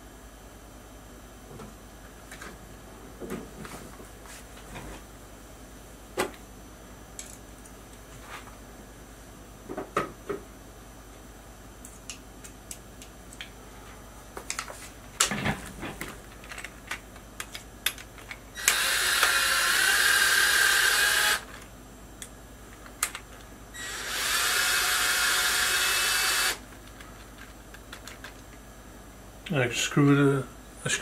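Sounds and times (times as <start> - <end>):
clicks of handling parts: 7.2 - 8.0, 14.4 - 18.8, 21.5 - 23.5
drill-driver driving bolt into plastic: 18.6 - 21.4.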